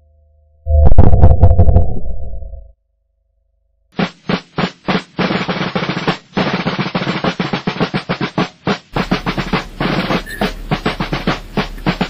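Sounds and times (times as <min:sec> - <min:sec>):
snare drum cadence: 0:04.0 - 0:12.0.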